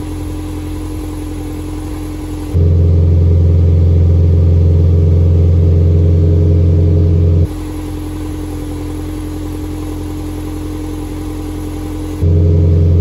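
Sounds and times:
car exhaust engine drone: 0.0 - 13.0.

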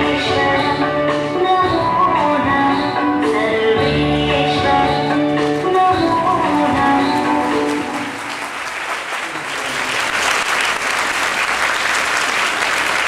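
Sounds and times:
dance music: 0.0 - 8.3
audience applause: 6.7 - 13.0.

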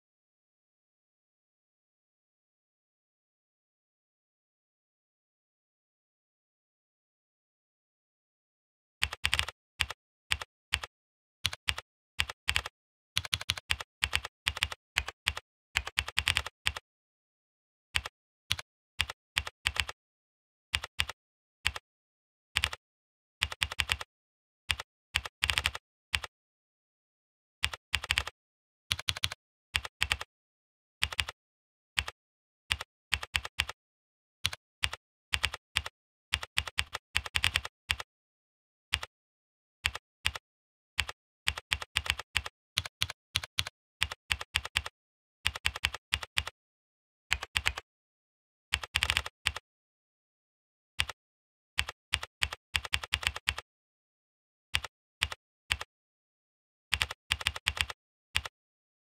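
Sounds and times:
computer keyboard typing: 9.0 - 10.9, 11.5 - 16.8, 18.0 - 20.0, 20.8 - 21.8, 22.6 - 22.8, 23.4 - 24.1, 24.7 - 26.3, 27.6 - 28.3, 28.9 - 30.3, 31.0 - 31.4, 32.0 - 33.8, 34.5 - 38.1, 39.9 - 40.4, 41.0 - 44.9, 45.5 - 46.5, 47.3 - 47.8, 48.8 - 49.6, 51.8 - 53.6, 54.8 - 55.9, 56.9 - 58.5.

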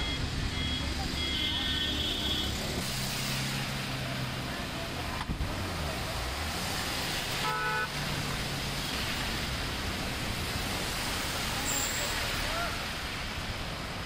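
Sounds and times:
car horn toot: 1.2 - 2.6, 7.4 - 7.9
water washing: 2.6 - 14.0.

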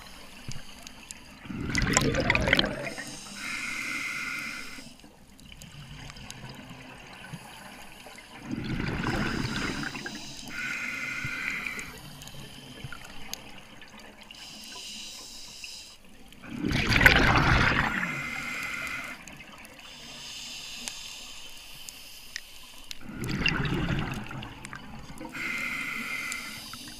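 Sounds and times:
exhaled bubbles underwater: 1.1 - 3.3, 5.4 - 10.6, 16.3 - 19.8, 23.0 - 25.6
regulator inhale hiss: 2.8 - 5.0, 9.1 - 13.1, 14.4 - 16.0, 17.9 - 23.0, 25.3 - 26.9.

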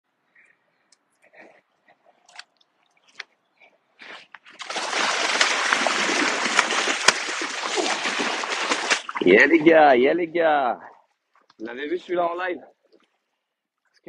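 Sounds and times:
fish thrashing water splash: 4.5 - 9.7
sharp water slaps: 4.5 - 9.7.

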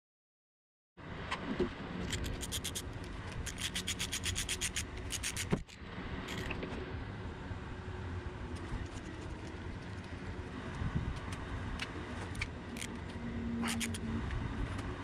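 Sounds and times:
low background hum: 1.0 - 15.0
socket wrench ratchet clicking: 2.0 - 2.8, 3.4 - 6.5.

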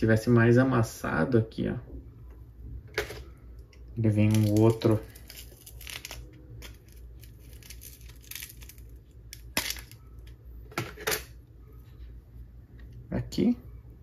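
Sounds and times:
plastic blister tray crackling: 4.1 - 10.2.

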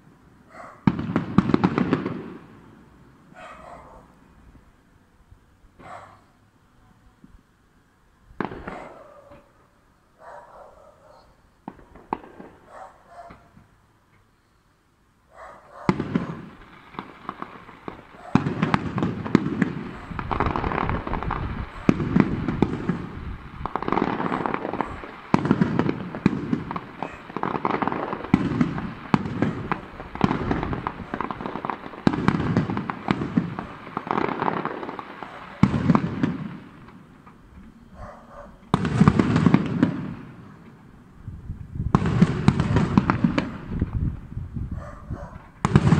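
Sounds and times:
firework crackling: 0.0 - 3.3, 8.4 - 9.6, 11.4 - 13.8, 15.6 - 44.8, 45.4 - 45.9.

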